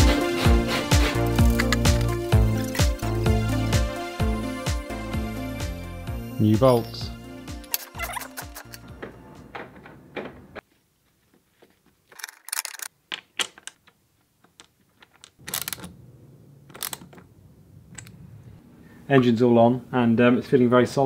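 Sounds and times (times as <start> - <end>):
metal hardware clinking: 7.6 - 8.9, 12.1 - 13.9, 14.5 - 16.0, 16.7 - 17.3.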